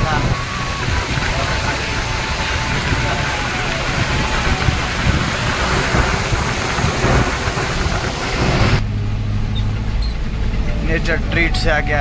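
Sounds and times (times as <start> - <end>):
wind buffeting microphone: 0.0 - 8.8
road rumble: 0.0 - 12.0
truck engine drone: 0.0 - 12.0.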